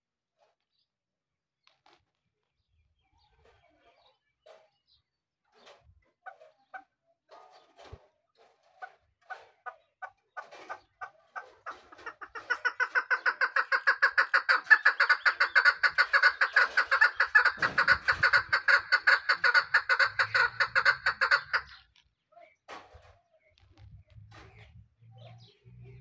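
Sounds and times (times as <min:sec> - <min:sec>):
partridge calling: 0:09.3 - 0:22.0.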